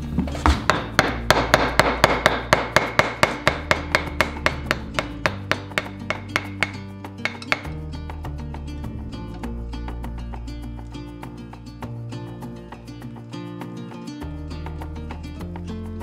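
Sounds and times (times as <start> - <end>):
background music: 0.0 - 16.0
chisel tapping into wood: 0.5 - 7.8.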